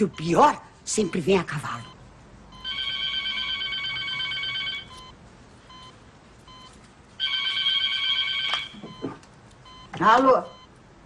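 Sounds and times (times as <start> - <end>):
electronic telephone ringing: 2.5 - 5.1, 6.5 - 9.1.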